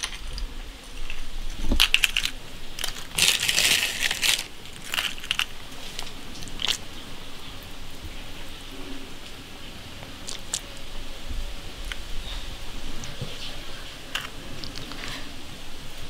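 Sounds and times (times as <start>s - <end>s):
crushed ice crunching and clinking: 0.0s - 0.4s, 1.0s - 6.8s.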